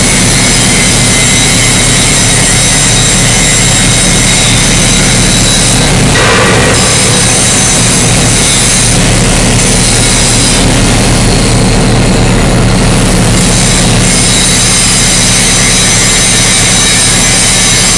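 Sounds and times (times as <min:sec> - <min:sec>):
diesel locomotive rumbling: 0:00.0 - 0:17.9.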